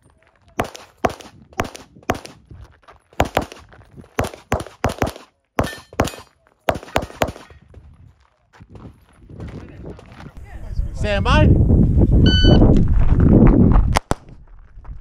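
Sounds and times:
pistol shots: 0.6 - 2.4, 3.2 - 7.6.

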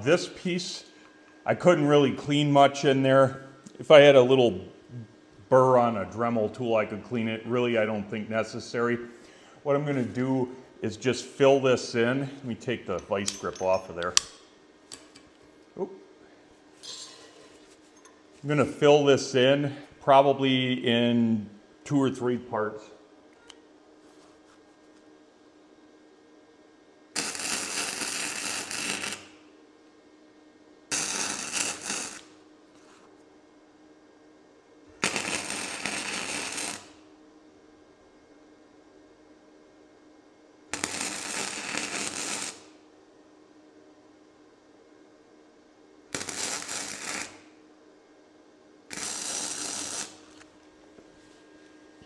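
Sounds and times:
welder arc crackling: 27.2 - 29.4, 30.9 - 32.4, 35.0 - 37.1, 40.7 - 42.8, 46.1 - 47.6, 48.9 - 50.6.

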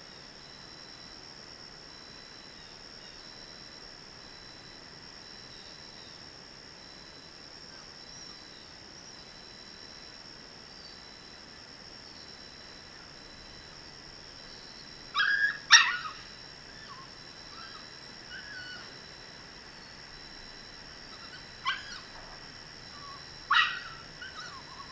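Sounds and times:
dog yelping: 15.1 - 18.9, 21.1 - 24.9
dog whimpering: 21.2 - 24.9.

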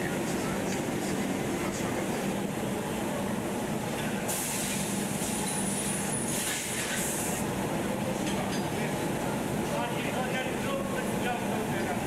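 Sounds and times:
machinery humming: 0.0 - 12.0
hiss: 4.3 - 7.4.

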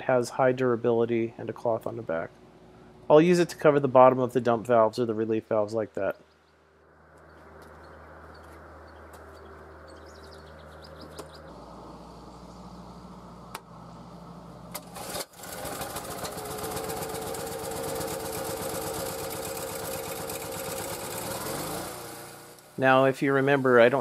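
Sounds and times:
generator engine running: 7.0 - 24.0.

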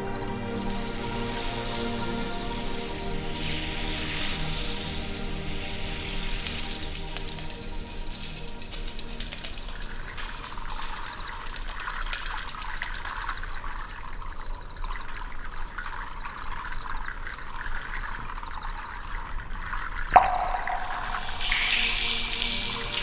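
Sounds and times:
cricket chirping: 0.1 - 3.2, 4.7 - 23.0
sharp click: 20.1 - 22.1
soft hiss: 20.2 - 23.0.

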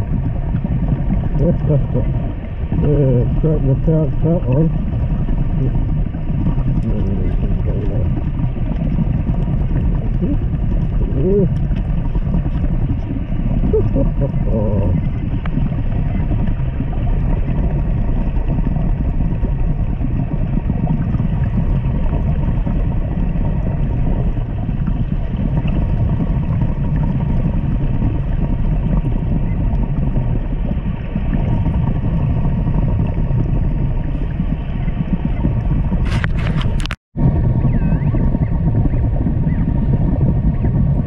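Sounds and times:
underwater rumble: 0.0 - 41.0
faint short warbling: 10.1 - 11.6, 13.1 - 15.2, 37.6 - 39.7.

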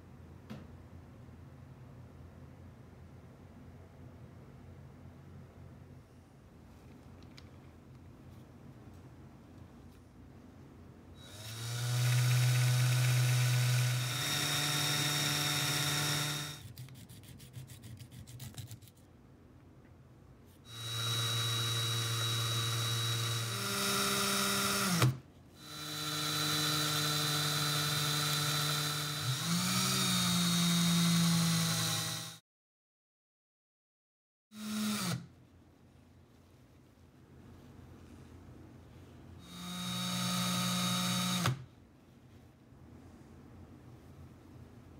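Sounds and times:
cordless drill running: 11.2 - 16.6, 20.7 - 32.4, 34.6 - 35.2, 39.4 - 41.6
sandpaper on spinning screw: 16.2 - 19.0.

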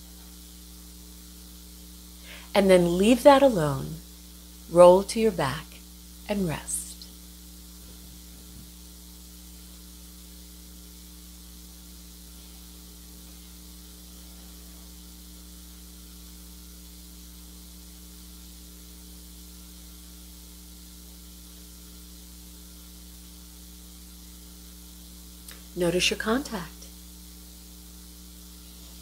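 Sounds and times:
constant hiss: 0.0 - 29.0
low electrical hum: 0.0 - 29.0.

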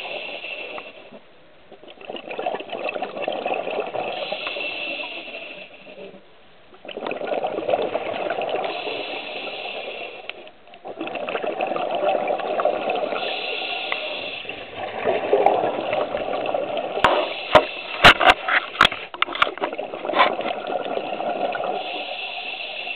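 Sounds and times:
scuba regulator hissing inhalations: 4.1 - 6.1, 8.6 - 10.5, 13.1 - 14.7, 17.0 - 18.3, 21.7 - 22.9
bubbly exhalations: 6.8 - 9.1, 10.8 - 22.0.

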